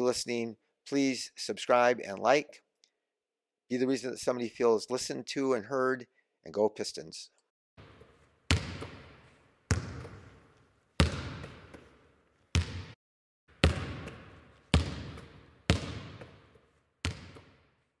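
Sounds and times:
basketball bouncing on hard floor: 7.8s - 17.6s.

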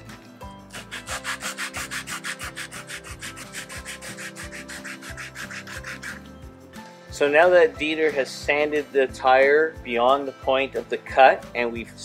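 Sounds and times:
sandpaper rubbing on rubber: 0.7s - 6.3s.

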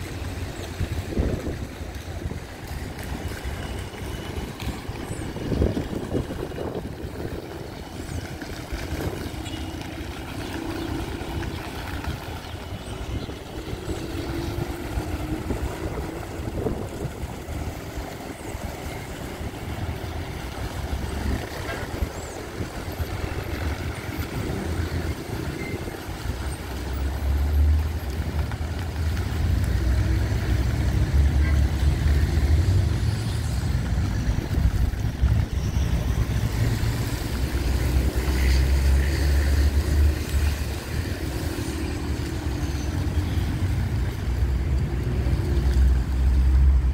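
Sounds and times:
road traffic: 0.0s - 46.9s.

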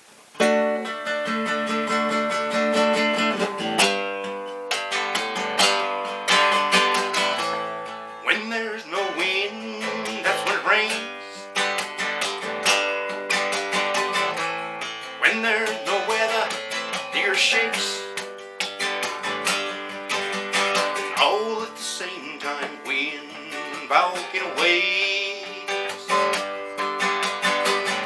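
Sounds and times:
acoustic guitar strumming: 0.4s - 28.0s
man's voice: 8.2s - 11.5s, 15.2s - 18.1s, 21.1s - 26.4s.

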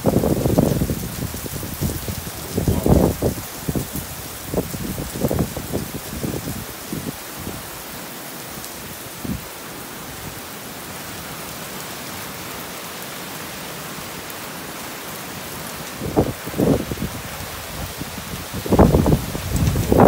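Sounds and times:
heavy rain pouring: 0.0s - 20.0s.

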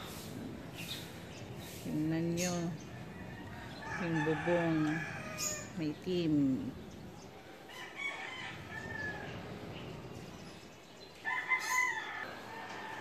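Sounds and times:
rooster crowing: 3.0s - 5.8s, 7.7s - 9.5s, 11.2s - 13.0s.

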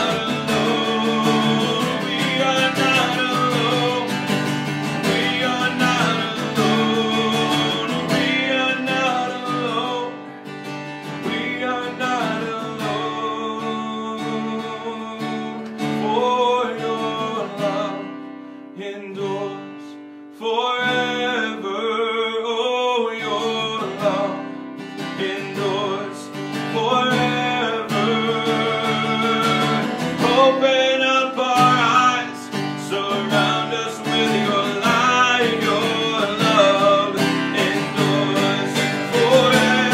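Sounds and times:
man singing worship song: 0.0s - 10.4s, 11.0s - 39.9s
acoustic guitar strumming: 0.0s - 39.9s.

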